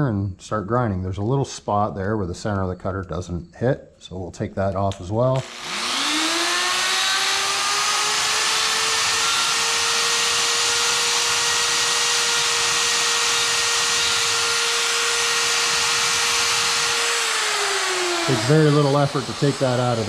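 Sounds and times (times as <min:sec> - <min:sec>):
die grinder motor whine: 0:05.4 - 0:20.0.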